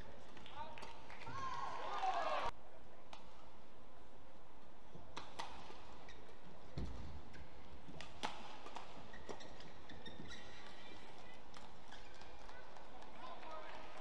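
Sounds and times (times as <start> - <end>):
footwork on court: 4.9 - 14.0.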